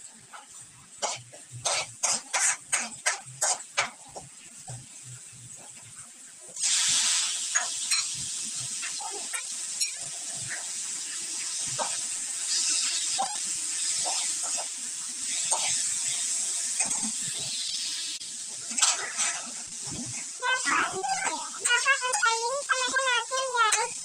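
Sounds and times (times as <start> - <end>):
meat sizzling in a wok: 0.0 - 24.0
metal spatula scraping a pan: 0.3 - 4.1, 18.7 - 24.0.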